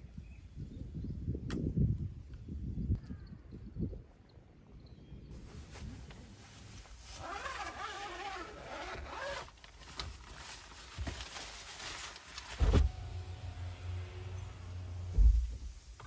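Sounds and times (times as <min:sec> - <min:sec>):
fabric net rustling: 0:05.4 - 0:13.2
zipper pulled: 0:07.1 - 0:09.6
heavy thump: 0:12.5 - 0:13.2, 0:15.0 - 0:16.0.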